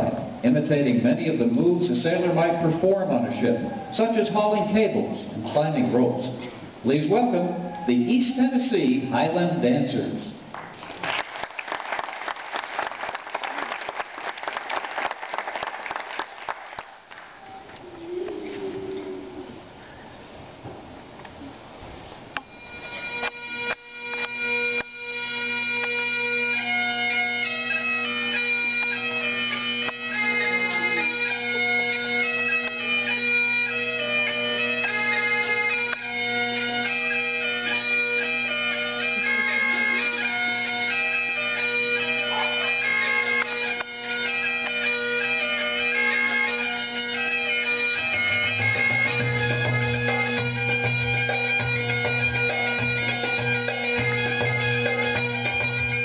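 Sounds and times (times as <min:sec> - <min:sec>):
bagpipe drones: 0:22.4 - 0:56.0
bagpipe melody: 0:22.4 - 0:56.0.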